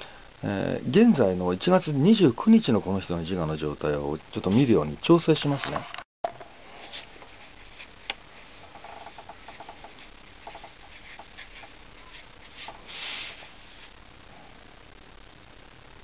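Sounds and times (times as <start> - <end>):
soft paper rustle: 6.7 - 13.9.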